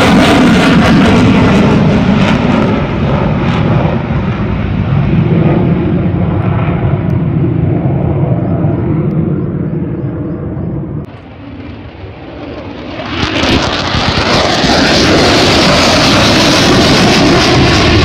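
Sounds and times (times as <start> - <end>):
fighter jet engine roar: 0.0 - 18.0.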